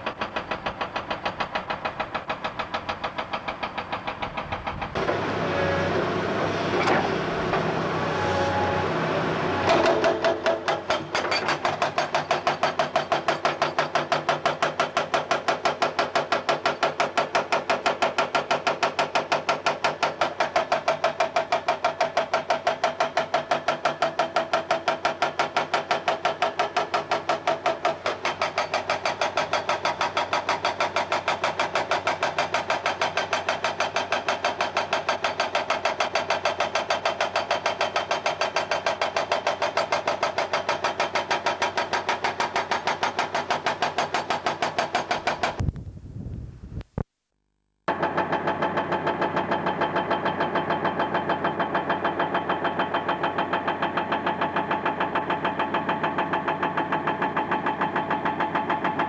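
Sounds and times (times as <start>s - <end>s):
hydraulic rock breaker hammering: 0.0s - 7.8s, 9.5s - 45.6s, 47.9s - 59.0s
diesel engine running: 5.0s - 10.6s.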